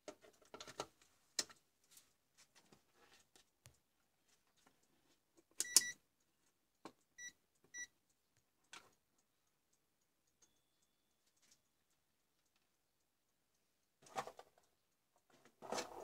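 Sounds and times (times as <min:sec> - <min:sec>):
multimeter beeping: 0:05.6 - 0:06.0.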